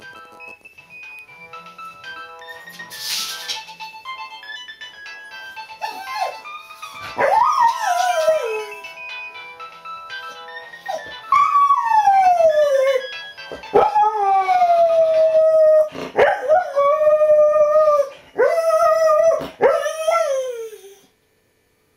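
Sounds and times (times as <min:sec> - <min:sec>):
mobile phone ringing: 0:00.0 - 0:07.3, 0:07.9 - 0:11.5, 0:12.7 - 0:14.2
dog howling: 0:07.2 - 0:08.8, 0:13.8 - 0:21.1.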